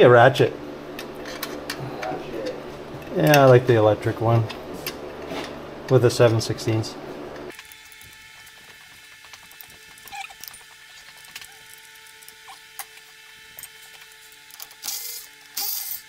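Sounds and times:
faint steady hum: 0:00.0 - 0:16.0
tools clicking and scraping: 0:01.0 - 0:03.6, 0:07.5 - 0:16.0.

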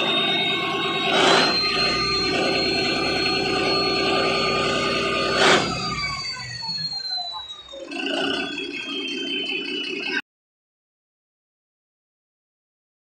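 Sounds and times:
marine diesel engine running: 0:00.0 - 0:07.1
turbo whine: 0:00.0 - 0:10.2.

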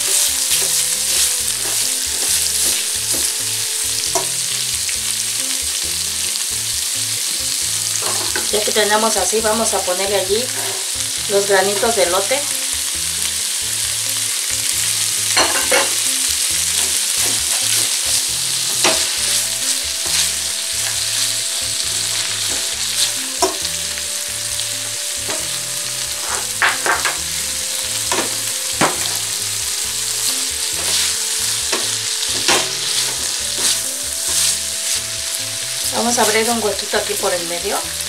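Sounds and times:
spatula scraping skillet: 0:00.0 - 0:05.2, 0:07.7 - 0:08.8, 0:10.4 - 0:11.1, 0:14.6 - 0:37.3
vegetables sizzling in oil: 0:00.0 - 0:38.0.

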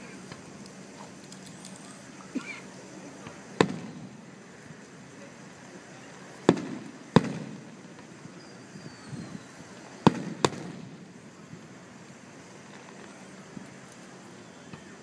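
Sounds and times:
firework shells bursting: 0:03.2 - 0:04.9, 0:06.4 - 0:08.2, 0:09.8 - 0:11.2.

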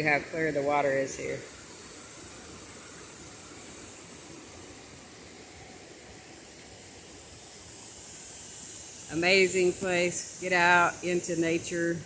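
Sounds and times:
stream rippling over rocks: 0:00.0 - 0:12.0.

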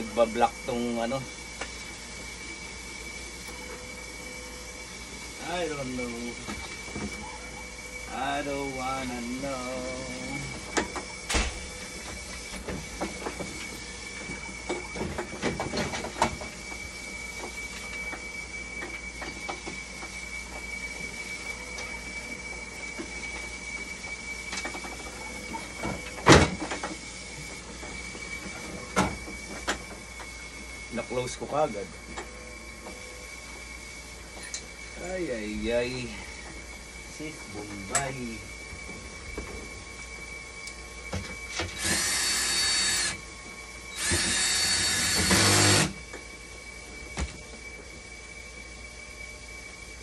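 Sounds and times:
high-pitched machine whine: 0:00.0 - 0:50.0
cordless drill driving screws: 0:41.7 - 0:43.2, 0:44.0 - 0:46.0.

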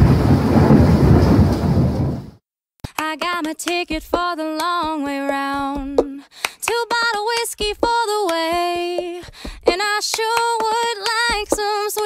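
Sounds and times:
woman singing: 0:02.8 - 0:12.0
drum beat: 0:05.6 - 0:06.1, 0:07.6 - 0:11.7.

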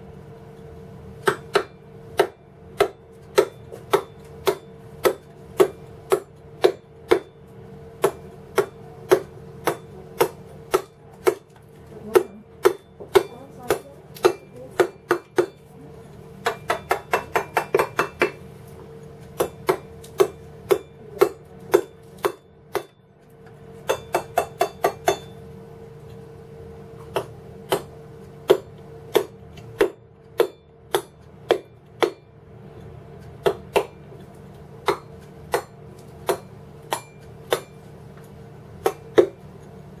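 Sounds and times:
steady hum: 0:00.0 - 0:40.0
mallet striking chisel into stone: 0:01.2 - 0:07.3, 0:12.1 - 0:15.6, 0:16.4 - 0:18.4, 0:23.8 - 0:25.4, 0:28.5 - 0:32.3, 0:33.4 - 0:34.0, 0:34.8 - 0:37.8.

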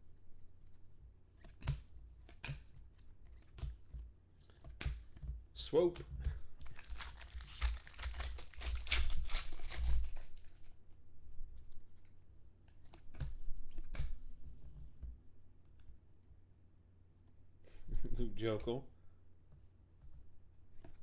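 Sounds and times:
cards and wrappers rustling: 0:06.3 - 0:10.8
foil wrapper crinkling and tearing: 0:06.6 - 0:10.7.

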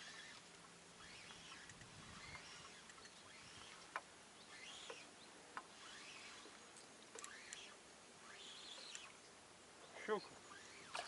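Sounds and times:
distant bird calls: 0:00.0 - 0:11.0
soft clicks: 0:01.6 - 0:03.2.

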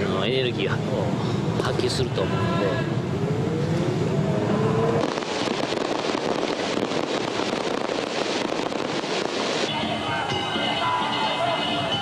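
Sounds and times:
low rumble with rising tone: 0:03.0 - 0:05.2
fireworks crackling and popping: 0:04.9 - 0:11.0.

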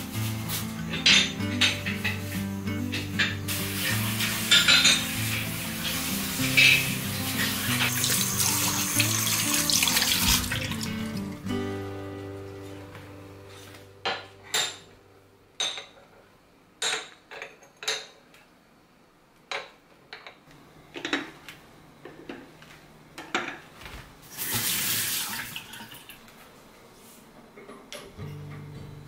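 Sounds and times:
water running from tap into sink: 0:03.8 - 0:11.3, 0:24.3 - 0:26.2.

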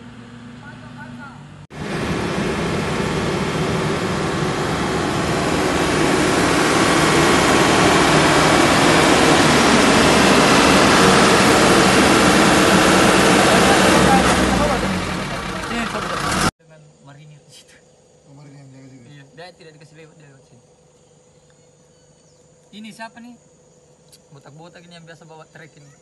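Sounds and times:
vehicle engine roaring: 0:00.0 - 0:16.5.

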